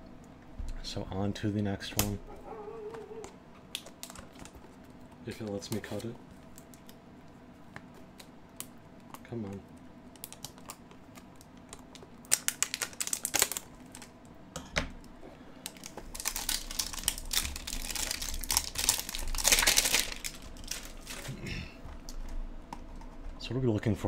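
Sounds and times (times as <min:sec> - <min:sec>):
wrapping crinkling and tearing: 0:02.8 - 0:14.2, 0:15.6 - 0:23.4.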